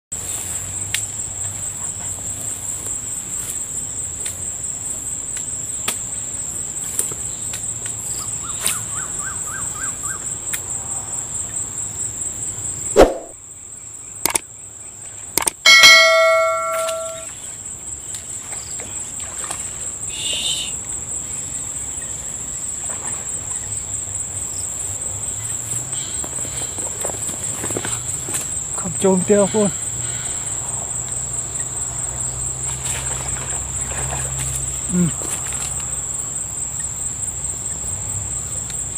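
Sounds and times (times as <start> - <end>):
insects droning: 0.2 - 38.9
sharp knock: 13.0 - 13.3, 15.7 - 17.3
bell-like ding: 15.7 - 17.3.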